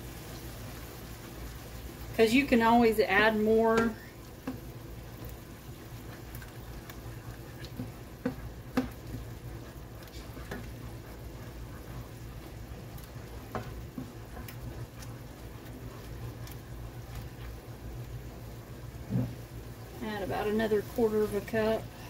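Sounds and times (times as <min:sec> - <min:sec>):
light sizzle: 0:00.0 - 0:22.0
spoon stirring and scraping sauce: 0:03.7 - 0:18.1.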